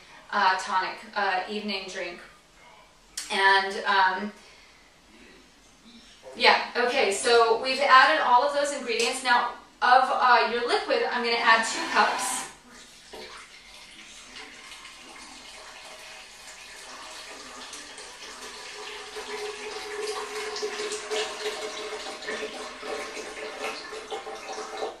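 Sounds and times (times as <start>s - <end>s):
tea pouring into jar: 12.7s - 25.0s.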